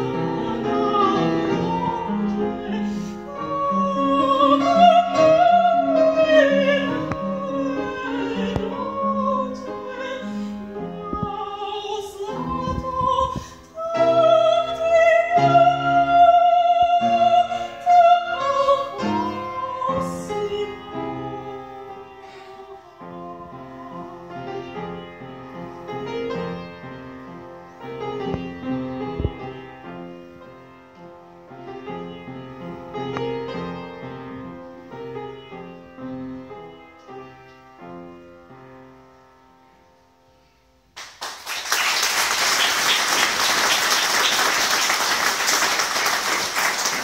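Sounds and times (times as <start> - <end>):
upright piano playing: 0.0 - 40.9
audience applause: 41.0 - 47.0.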